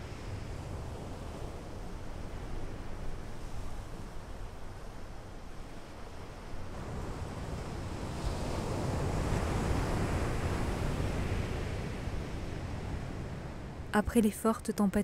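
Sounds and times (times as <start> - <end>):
sea waves breaking on beach: 6.6 - 13.5.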